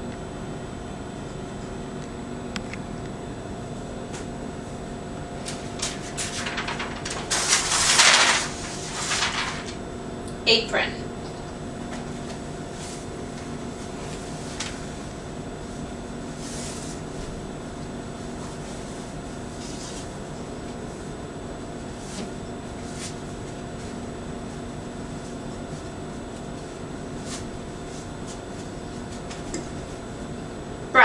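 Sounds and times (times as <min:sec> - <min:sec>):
room hum and hiss: 0:00.0 - 0:31.0
cloth apron rustling: 0:05.4 - 0:09.8, 0:11.8 - 0:30.2.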